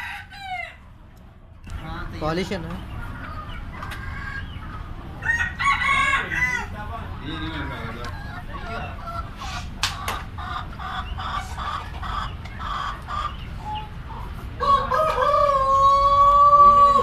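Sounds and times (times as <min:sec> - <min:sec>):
rooster crowing: 0:00.0 - 0:00.8, 0:05.2 - 0:06.8, 0:14.6 - 0:17.0
chickens clucking: 0:00.0 - 0:17.0.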